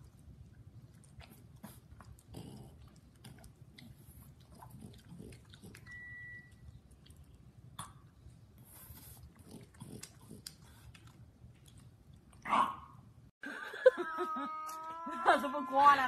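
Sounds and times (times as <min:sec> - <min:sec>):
dog chewing with mouth clicks: 0:00.0 - 0:12.4
faint beep: 0:05.9 - 0:06.6.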